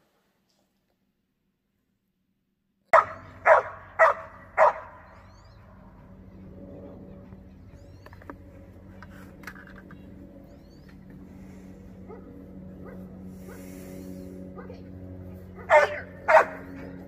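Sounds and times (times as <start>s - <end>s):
faint low hum: 0.0s - 17.0s
dog barking: 2.9s - 5.0s, 15.6s - 16.7s.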